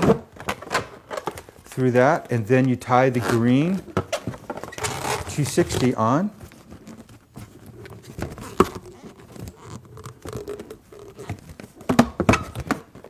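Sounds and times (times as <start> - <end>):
balloons rubbing and squeaking: 2.8 - 11.9.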